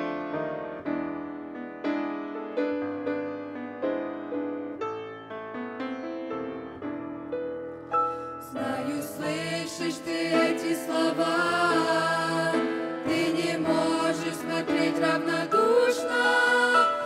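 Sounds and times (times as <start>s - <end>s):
grand piano: 0.0s - 17.0s
group singing in harmony: 8.4s - 17.0s.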